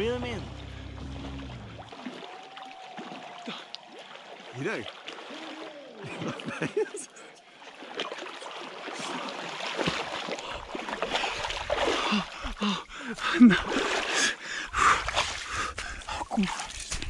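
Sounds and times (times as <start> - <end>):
water splashing: 0.0 - 17.0.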